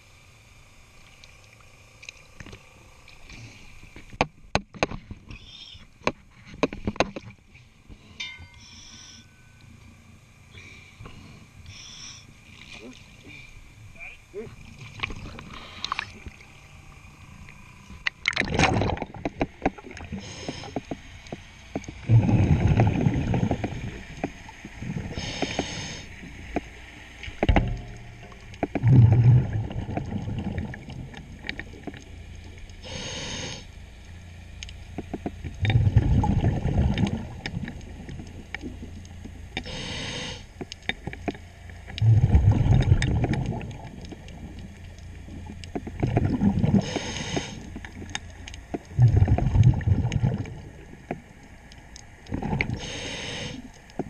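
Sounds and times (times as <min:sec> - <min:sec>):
regulator inhale hiss: 0:07.9 - 0:09.3, 0:10.5 - 0:12.4, 0:15.4 - 0:16.2, 0:20.1 - 0:21.0, 0:25.1 - 0:26.2, 0:32.8 - 0:33.8, 0:39.6 - 0:40.6, 0:46.7 - 0:47.8, 0:52.7 - 0:53.8
exhaled bubbles underwater: 0:18.0 - 0:20.6, 0:21.8 - 0:26.4, 0:27.4 - 0:33.1, 0:35.4 - 0:39.0, 0:41.9 - 0:51.3, 0:52.2 - 0:54.0.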